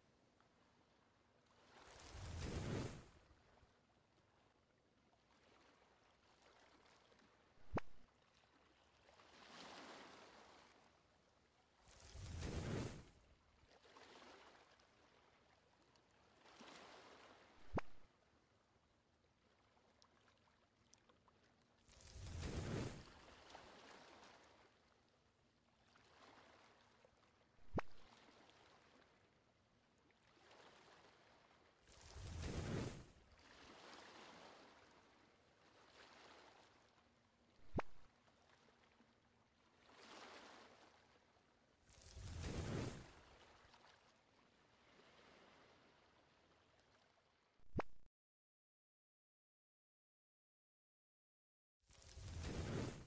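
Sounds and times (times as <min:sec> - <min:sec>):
soft whoosh sound effects: 0:42.1 - 0:43.2, 0:52.1 - 0:53.0.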